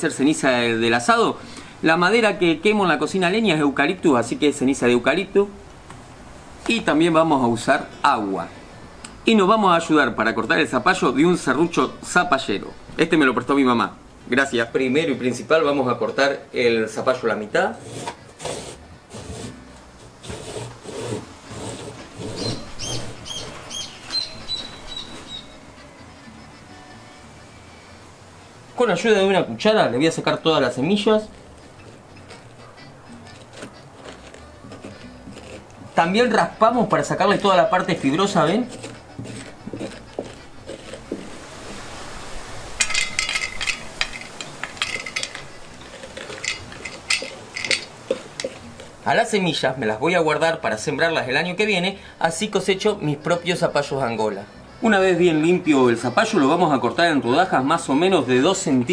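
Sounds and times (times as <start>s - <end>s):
hand saw cutting squash: 17.7s - 23.6s, 31.1s - 41.4s, 45.2s - 49.2s.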